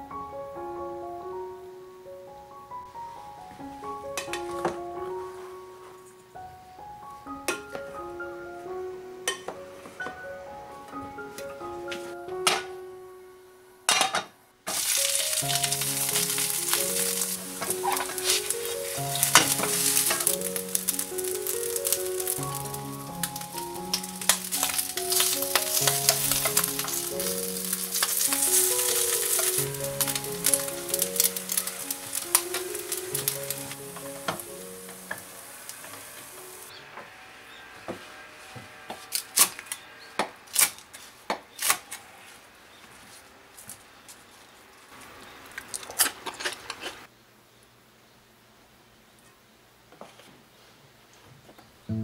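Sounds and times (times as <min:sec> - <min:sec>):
rice sizzling in a frying pan: 0:14.7 - 0:36.7.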